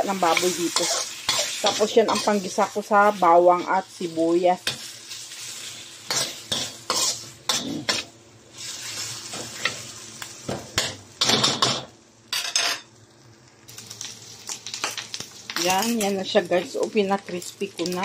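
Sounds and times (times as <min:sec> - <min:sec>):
fat sizzling: 0:00.0 - 0:18.0
metal spoon scraping a wok: 0:00.3 - 0:02.4, 0:06.1 - 0:09.8.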